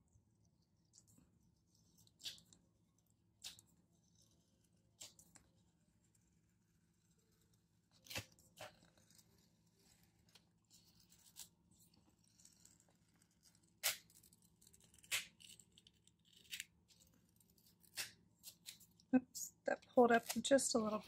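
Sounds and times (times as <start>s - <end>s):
paper crinkles and snaps: 0.8s - 3.8s, 7.4s - 19.1s, 20.1s - 21.0s.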